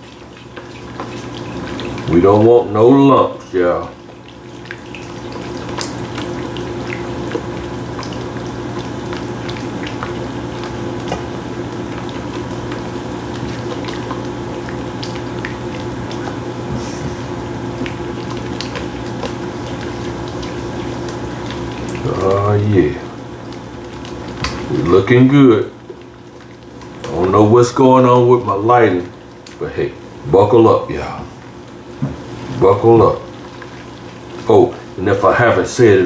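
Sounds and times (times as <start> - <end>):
sauce bubbling and sizzling: 0.0 - 36.0
steady low hum: 0.0 - 36.0.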